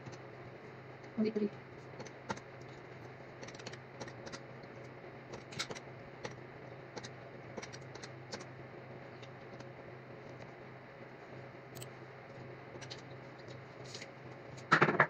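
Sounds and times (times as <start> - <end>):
steady low hum: 0.0 - 15.0
computer keyboard typing: 3.4 - 4.4, 7.0 - 8.5.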